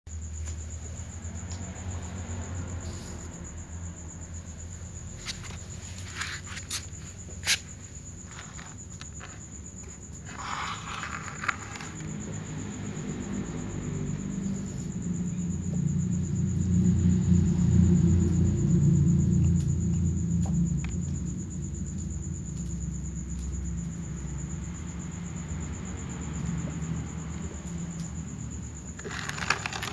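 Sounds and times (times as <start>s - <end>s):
night insects trilling: 0.1s - 29.9s.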